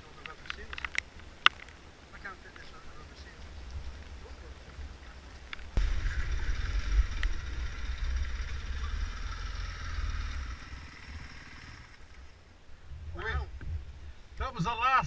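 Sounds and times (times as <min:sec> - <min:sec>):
dirt bike engine rumbling: 0:03.3 - 0:14.4.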